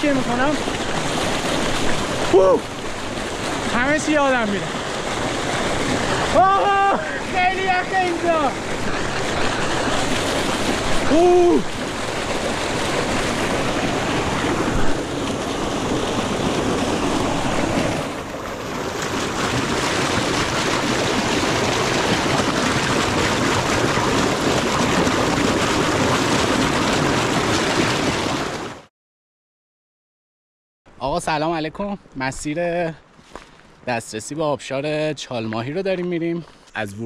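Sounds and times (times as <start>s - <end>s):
stream rushing over rocks: 0.0s - 28.9s
water pouring into a pool: 0.0s - 28.9s
man exclaiming: 2.3s - 2.6s, 6.3s - 8.5s, 11.0s - 11.7s.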